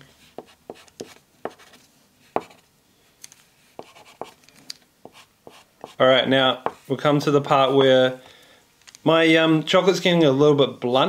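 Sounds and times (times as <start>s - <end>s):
scratchy strokes on paper: 0.3s - 2.7s, 3.8s - 4.4s.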